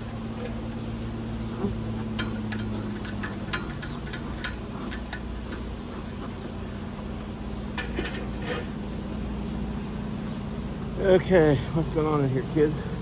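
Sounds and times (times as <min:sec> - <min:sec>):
steady low hum: 0:00.0 - 0:13.0
light clicks and knocks from gear: 0:01.5 - 0:06.4.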